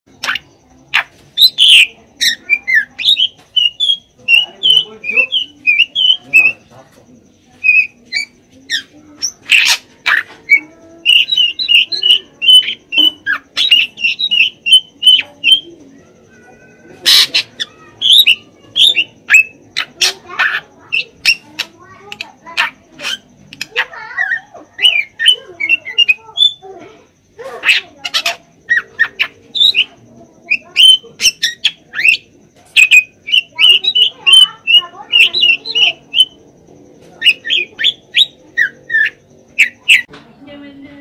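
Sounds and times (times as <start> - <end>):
bird loud harsh calls: 0.1 - 40.1
bird whistled notes: 37.2 - 40.1.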